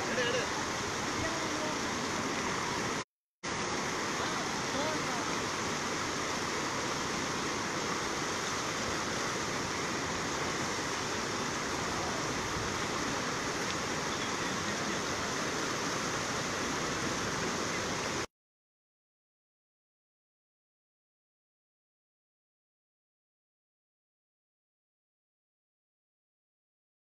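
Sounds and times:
river water rushing: 0:00.0 - 0:18.3.

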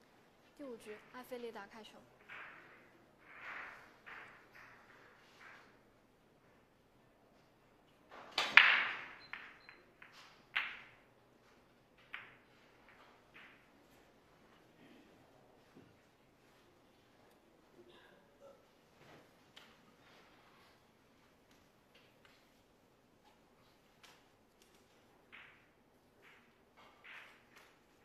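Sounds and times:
billiard balls clacking: 0:02.1 - 0:14.7, 0:21.2 - 0:28.0
cue ball breaking rack: 0:08.1 - 0:11.1.

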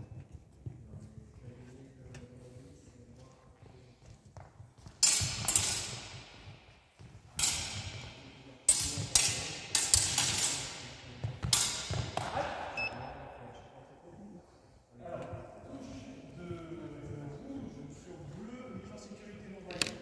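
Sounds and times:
steel blades clashing: 0:05.0 - 0:06.4, 0:07.4 - 0:11.0.

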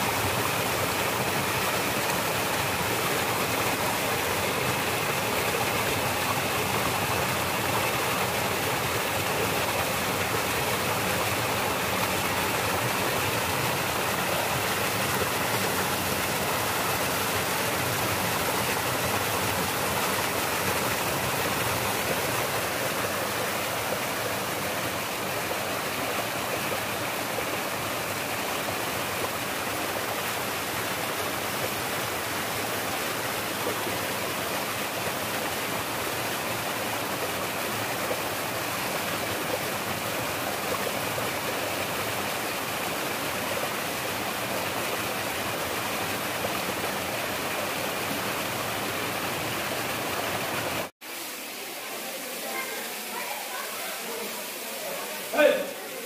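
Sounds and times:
stream rushing over rocks: 0:00.0 - 0:56.0.

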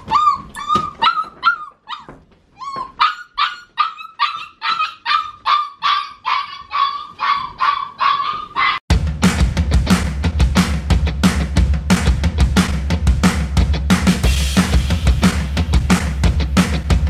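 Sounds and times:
puppy yipping and crying: 0:00.0 - 0:08.8
music with drums: 0:08.9 - 0:17.0.

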